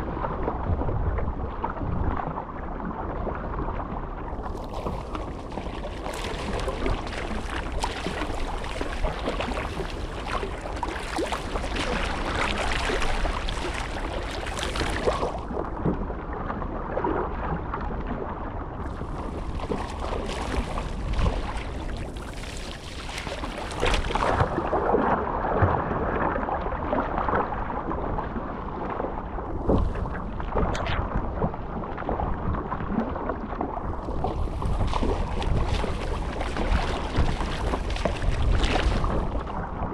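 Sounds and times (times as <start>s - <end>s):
water splashing along hull: 0.0s - 39.9s
paddle blades dipping in water: 4.4s - 15.6s, 18.8s - 25.1s, 33.8s - 39.7s
wind buffeting microphone: 33.8s - 39.9s.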